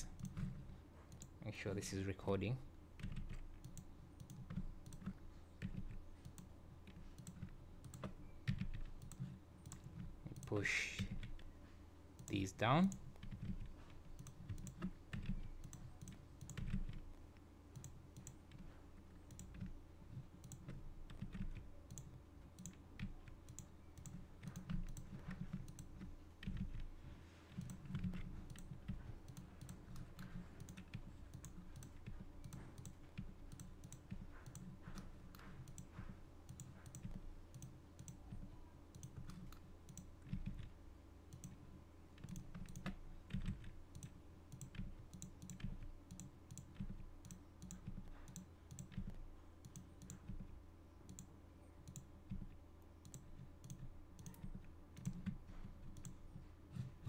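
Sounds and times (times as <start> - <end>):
computer mouse clicks: 0.0 - 1.4, 3.0 - 11.5, 12.2 - 57.0
low steady hum: 0.0 - 57.0.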